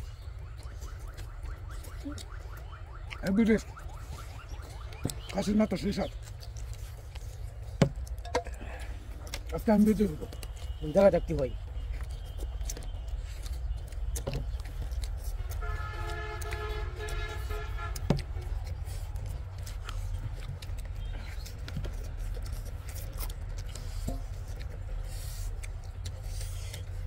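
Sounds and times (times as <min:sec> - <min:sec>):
hands tearing meat and eating: 0:00.0 - 0:27.0
vehicle horn: 0:15.6 - 0:18.1.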